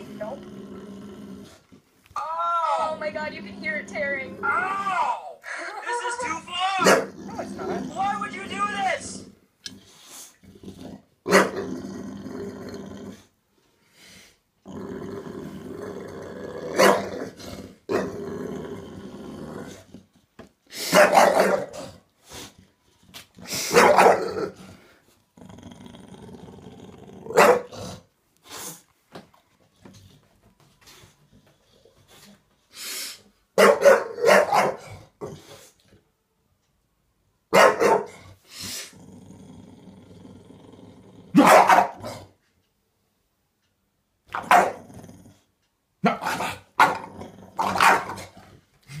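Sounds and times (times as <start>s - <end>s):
dog growling: 0.0s - 4.8s, 6.8s - 13.4s, 14.6s - 20.2s, 21.2s - 28.6s, 38.1s - 42.4s, 44.3s - 49.0s
dog barking gruffly: 6.8s - 8.1s, 11.3s - 11.6s, 16.7s - 18.1s, 20.9s - 21.9s, 23.7s - 24.6s, 27.3s - 28.0s, 33.6s - 35.3s, 37.5s - 38.3s, 41.3s - 42.3s, 44.3s - 44.9s, 46.0s - 48.4s.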